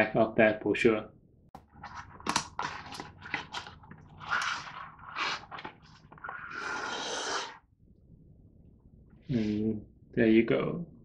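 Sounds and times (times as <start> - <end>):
cardboard and plastic scraping: 1.6 - 6.4.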